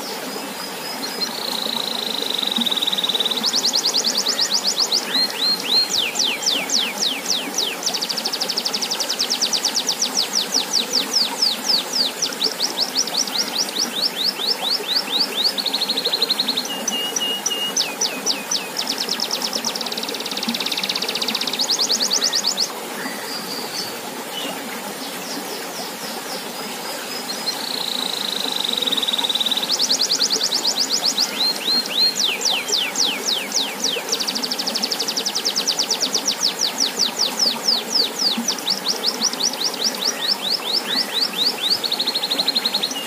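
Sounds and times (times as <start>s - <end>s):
fountain water splashing: 0.0s - 43.0s
canary singing trills: 1.4s - 23.9s.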